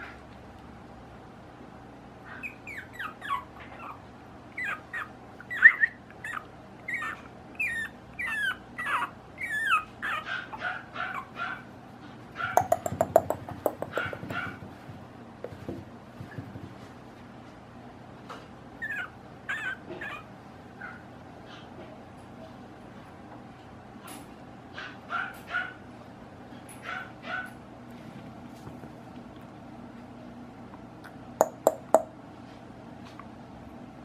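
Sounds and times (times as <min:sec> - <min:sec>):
puppy whimpering: 0:02.3 - 0:11.6, 0:18.8 - 0:21.0.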